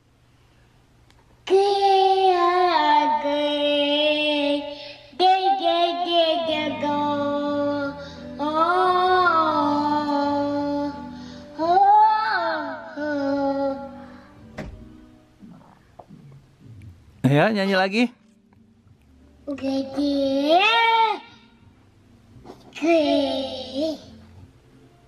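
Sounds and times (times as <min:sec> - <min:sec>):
toddler singing into microphone: 0:01.5 - 0:14.1, 0:22.7 - 0:24.1.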